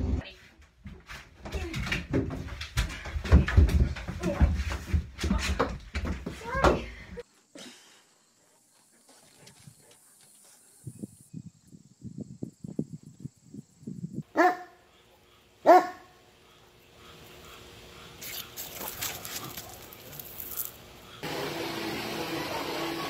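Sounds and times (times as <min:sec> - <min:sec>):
dog barking: 0:14.3 - 0:14.8, 0:15.6 - 0:16.2.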